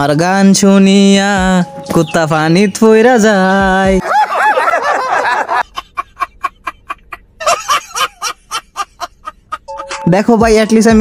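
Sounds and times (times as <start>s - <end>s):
men laughing: 3.8s - 9.9s.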